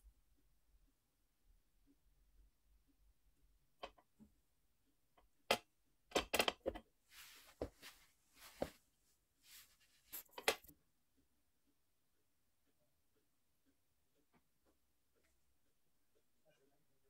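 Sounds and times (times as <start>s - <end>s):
rustling: 7.1s - 10.7s.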